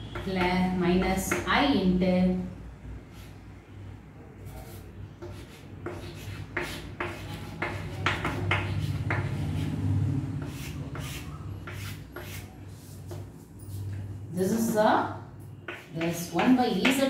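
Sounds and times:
pen scratching while writing: 4.7s - 9.7s.

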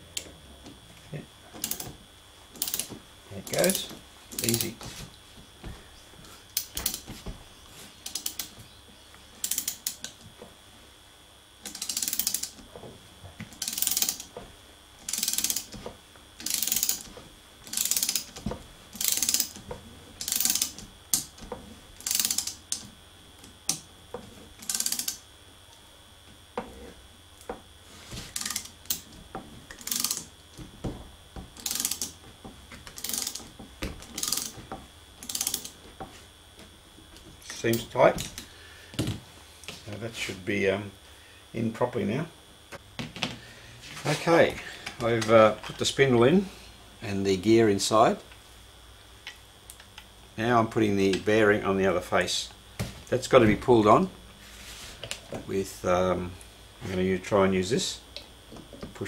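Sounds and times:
ratcheting spanner clicking: 1.6s - 1.9s, 2.6s - 2.9s, 3.6s - 4.8s, 6.6s - 7.0s, 8.0s - 8.6s, 9.4s - 10.2s, 11.6s - 12.6s, 13.5s - 14.3s, 15.0s - 15.8s, 16.4s - 18.4s, 19.0s - 19.6s, 20.2s - 21.4s, 22.0s - 23.8s, 24.6s - 25.2s, 28.4s - 29.1s, 29.7s - 30.3s, 31.6s - 32.2s, 32.9s - 34.6s, 35.2s - 35.8s.

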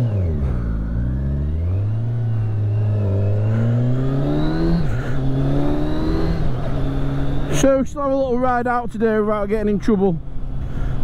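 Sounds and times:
motorcycle engine accelerating: 0.0s - 7.9s.

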